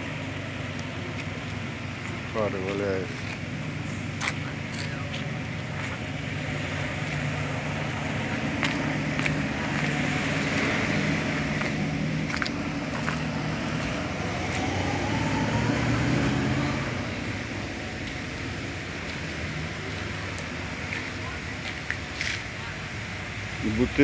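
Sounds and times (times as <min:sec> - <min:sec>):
vehicle engine running: 0:00.0 - 0:24.0
faint rising whine: 0:10.0 - 0:18.7.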